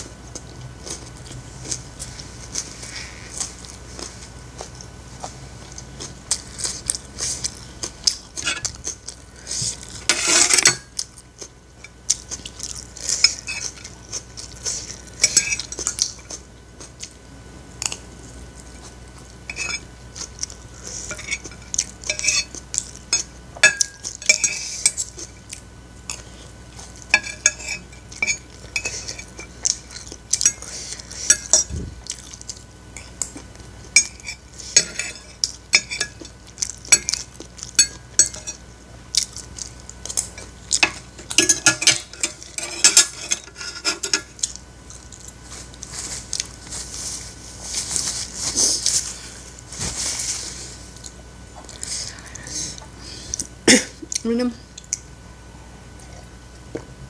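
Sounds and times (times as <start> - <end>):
cutlery scraping and clinking on plate: 6.3 - 9.0, 9.6 - 11.0, 12.4 - 16.4, 19.5 - 25.3, 27.1 - 31.7, 34.0 - 36.3, 36.9 - 38.6, 40.1 - 44.5.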